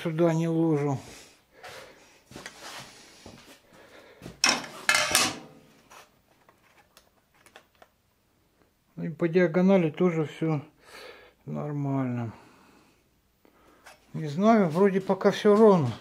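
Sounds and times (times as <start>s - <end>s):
scrapes and clatters on steel table: 4.4s - 5.6s.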